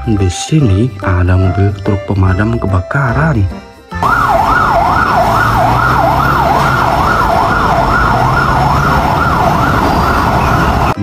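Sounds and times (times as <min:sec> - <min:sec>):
fire engine siren wailing: 0:04.0 - 0:11.0.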